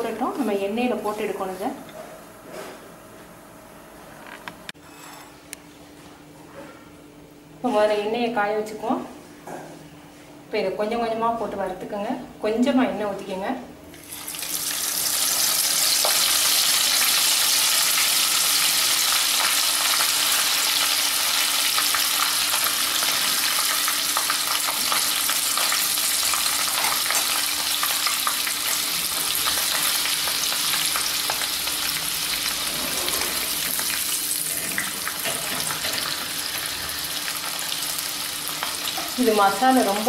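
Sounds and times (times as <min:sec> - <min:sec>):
florets sizzling in hot oil: 0:14.0 - 0:40.0.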